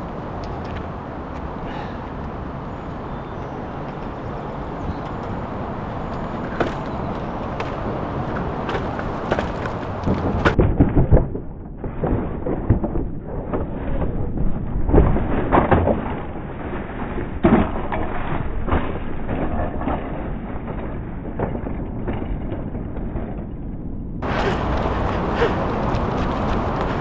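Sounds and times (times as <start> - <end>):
tyres on dirt: 0.0 - 14.2, 24.2 - 27.0
rushing wind: 0.0 - 27.0
bike and rider hitting ground: 5.2 - 23.6, 24.2 - 27.0.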